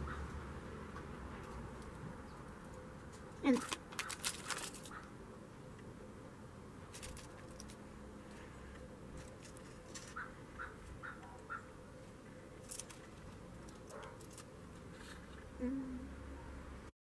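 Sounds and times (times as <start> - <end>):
foil crinkles and taps: 3.6 - 4.9.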